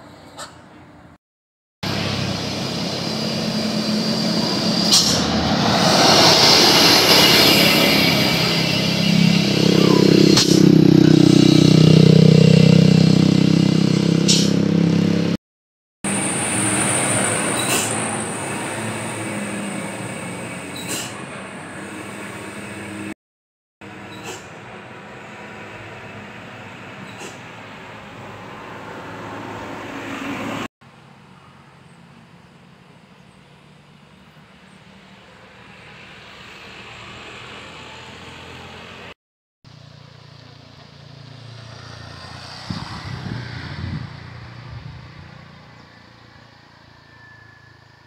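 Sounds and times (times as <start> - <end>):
road traffic: 0.0 - 1.2, 1.8 - 15.4, 16.0 - 23.2, 23.8 - 48.0
diesel truck engine passing: 1.8 - 15.4, 16.1 - 23.2, 23.8 - 30.7, 33.6 - 48.0
vehicle hum with high whine: 1.8 - 15.4, 23.8 - 48.0.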